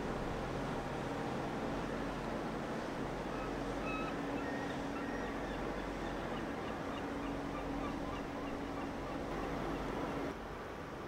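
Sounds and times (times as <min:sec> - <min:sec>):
ship engines rumbling: 0:00.0 - 0:10.3
bird calls: 0:03.3 - 0:10.0.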